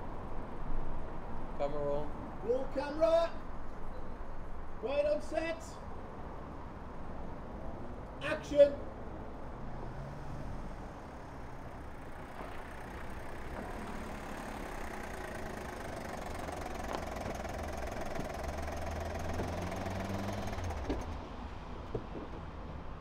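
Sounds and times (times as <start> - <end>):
car engine at low revs: 9.4 - 21.2.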